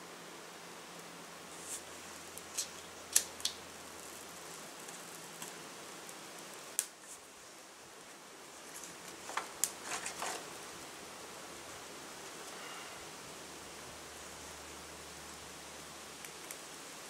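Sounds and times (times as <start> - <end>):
faint hiss: 0.0 - 17.0
small fire crackling: 0.0 - 17.0
twig snapping: 2.4 - 3.6.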